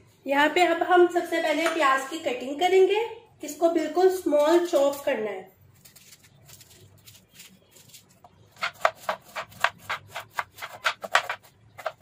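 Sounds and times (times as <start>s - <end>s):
knife chopping on wooden board: 8.6s - 12.0s.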